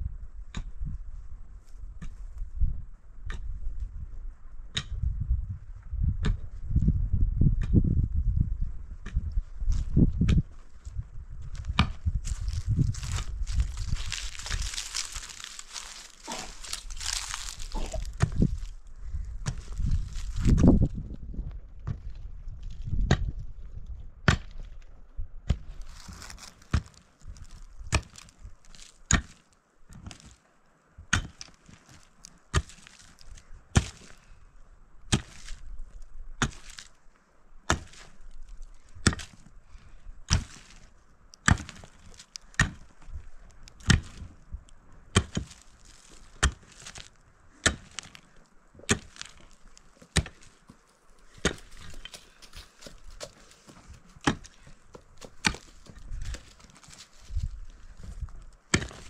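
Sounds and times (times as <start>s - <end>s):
pickaxe striking stony soil: 11.5s - 18.7s, 19.4s - 20.9s, 22.9s - 23.4s, 24.3s - 24.7s, 25.4s - 30.4s, 31.1s - 34.2s, 35.1s - 35.7s, 36.4s - 37.0s, 37.7s - 39.5s, 40.2s - 44.4s, 45.1s - 59.0s.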